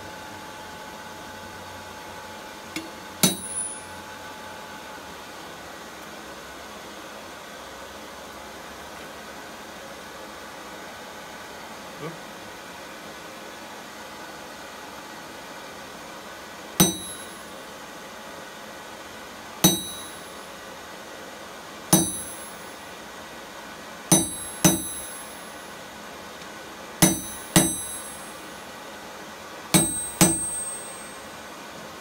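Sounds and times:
hammer striking metal: 2.8 - 4.0, 16.8 - 17.5, 19.6 - 20.4, 21.9 - 22.7, 24.1 - 25.6, 27.0 - 28.4, 29.8 - 31.2.

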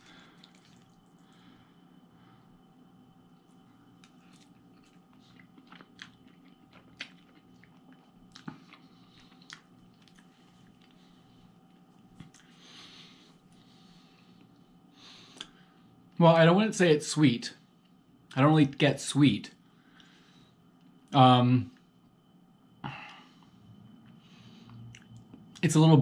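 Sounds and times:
man chewing quietly: 0.0 - 16.2, 19.8 - 25.6.

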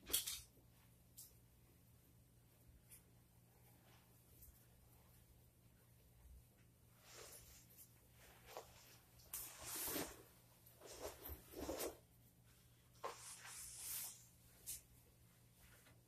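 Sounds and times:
fabric swishing: 7.0 - 12.0, 13.0 - 14.8.

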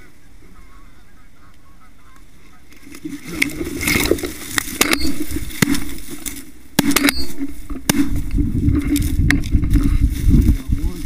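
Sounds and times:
geese honking: 0.0 - 8.0
wind rumble: 3.0 - 11.0
sharp knocks: 4.0 - 9.5.

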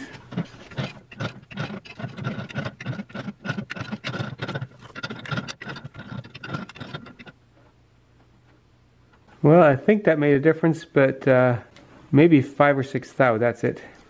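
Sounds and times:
metal vise clicking and clanking: 0.0 - 7.4.

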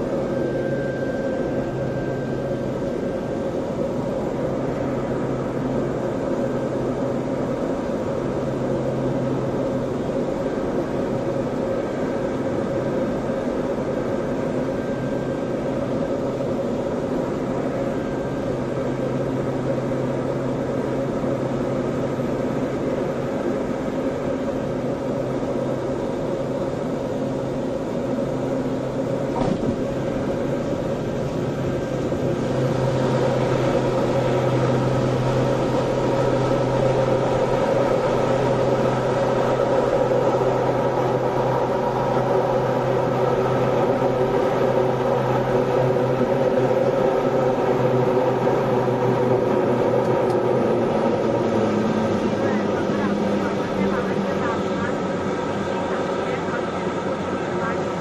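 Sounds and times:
propeller engine drone: 0.0 - 58.0
brief knock: 29.4 - 29.8.

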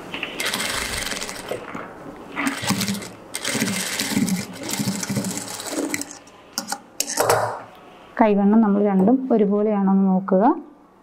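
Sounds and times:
sewing machine needle clatter: 2.4 - 6.2.

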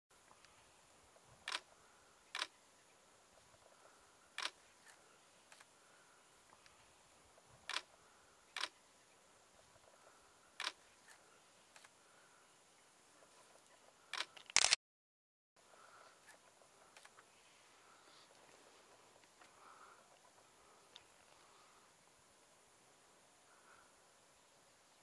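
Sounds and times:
faint background hiss: 0.2 - 14.3, 15.6 - 25.0
short sharp clicks: 14.2 - 14.8.

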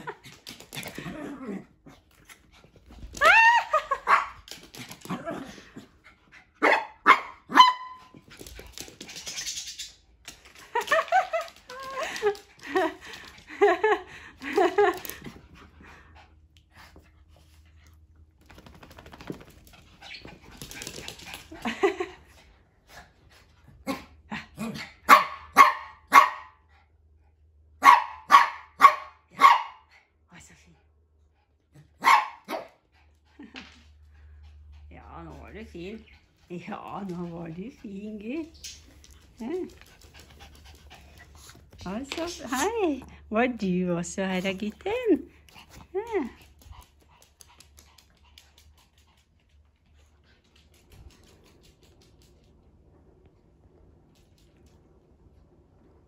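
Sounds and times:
small dog barking: 4.0 - 4.4, 6.6 - 8.0, 25.1 - 26.6, 27.8 - 29.8, 32.0 - 32.8.

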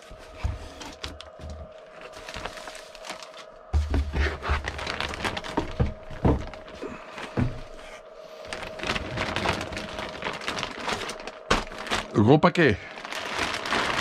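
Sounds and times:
plastic bags rustling and clicking: 0.0 - 14.0.

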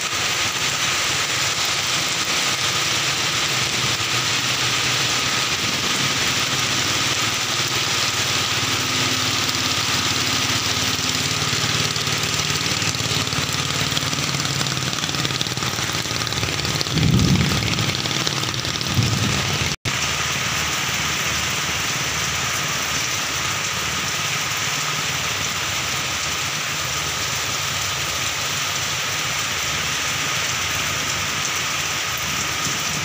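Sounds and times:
heavy rain on river: 0.0 - 33.0
motorboat engine running: 0.1 - 33.0
low rumble: 11.2 - 19.8.

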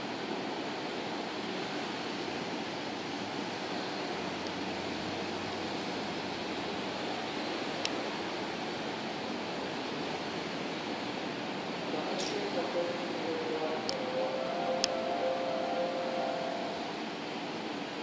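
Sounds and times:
railway station ambience hiss: 0.0 - 18.0.

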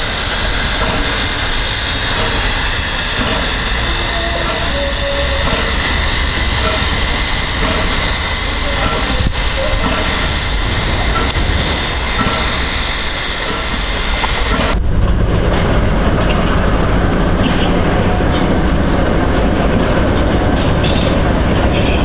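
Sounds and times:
steam hissing with whistling tone: 0.0 - 14.8
diesel locomotive engine rumbling: 0.0 - 22.0
wheels clicking on rail joints: 0.0 - 22.0.

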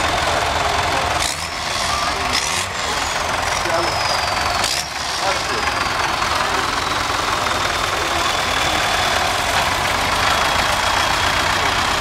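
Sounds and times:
tractor engine running: 0.0 - 12.0.

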